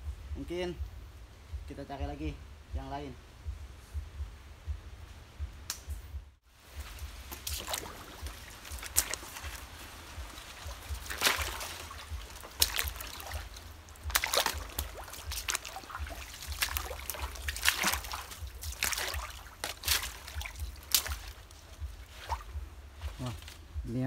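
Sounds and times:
palm fronds rustling: 0:06.4 - 0:24.0
footsteps splashing in water: 0:06.7 - 0:23.5.

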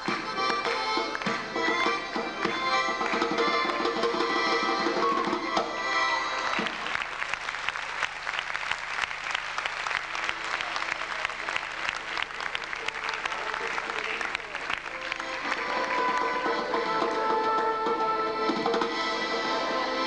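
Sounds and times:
audience applause: 0:00.0 - 0:04.2, 0:06.1 - 0:17.8
folk dance music: 0:00.0 - 0:20.0.

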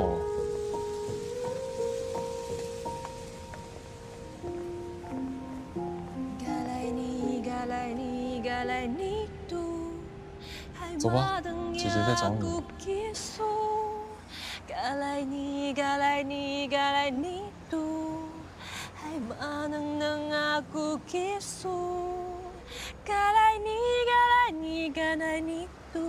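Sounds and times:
woman singing long held notes: 0:06.2 - 0:26.0.

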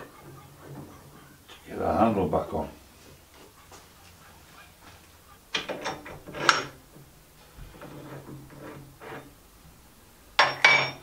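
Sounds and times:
metal crank clicking and clunking: 0:05.5 - 0:06.8.

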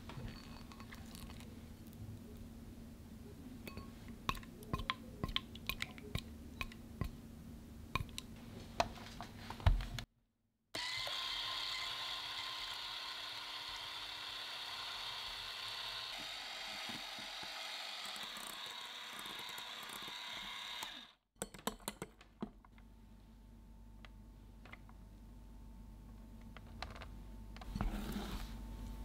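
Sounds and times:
electric hand mixer whipping cream: 0:10.8 - 0:21.2.

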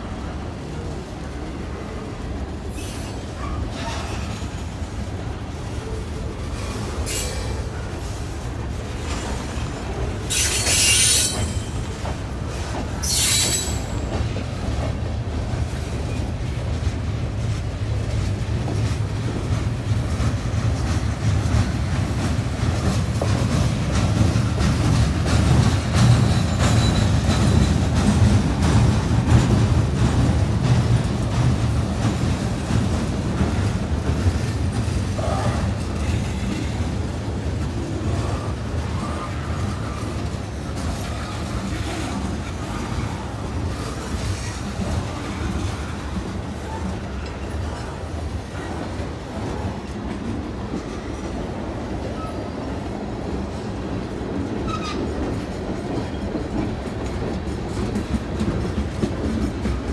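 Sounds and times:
train wheels rumbling: 0:00.0 - 0:59.9
wheel screeches: 0:10.3 - 0:11.7, 0:13.0 - 0:14.0.

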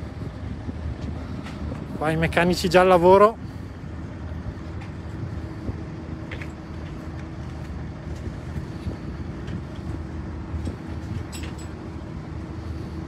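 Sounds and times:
low mechanical drone: 0:00.0 - 0:13.0
faint clinks: 0:11.2 - 0:11.8.

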